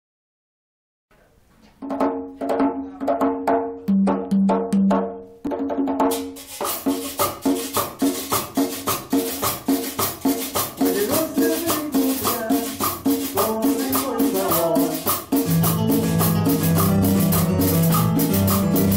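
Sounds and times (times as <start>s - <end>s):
conga drums played by hand: 1.8s - 18.9s
shaker pulse: 6.2s - 18.9s.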